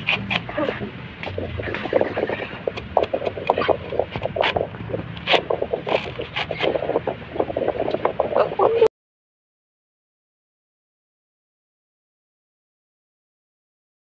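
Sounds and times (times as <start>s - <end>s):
fruit rind scraped and cut by blade: 0.0s - 1.4s, 2.6s - 6.8s.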